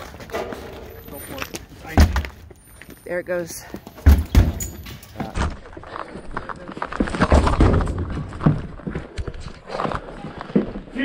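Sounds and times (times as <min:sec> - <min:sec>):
running footsteps: 0:03.6 - 0:11.0.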